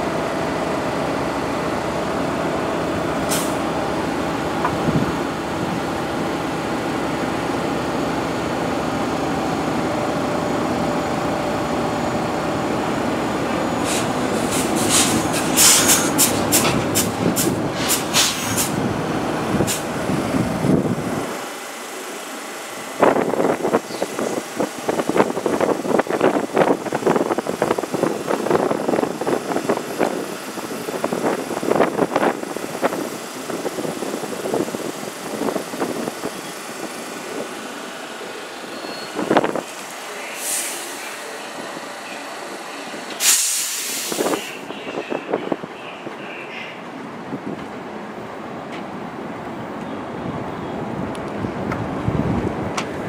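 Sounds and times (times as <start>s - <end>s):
subway train rumble: 0.0s - 53.0s
train rattling clatter: 13.3s - 20.0s.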